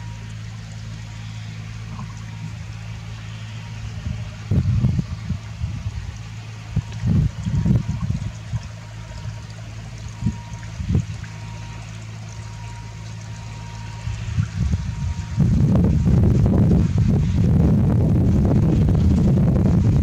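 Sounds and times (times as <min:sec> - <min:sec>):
paddle wheels splashing water: 0:00.0 - 0:20.0
steady low hum: 0:00.0 - 0:20.0
wind buffeting microphone: 0:03.8 - 0:20.0.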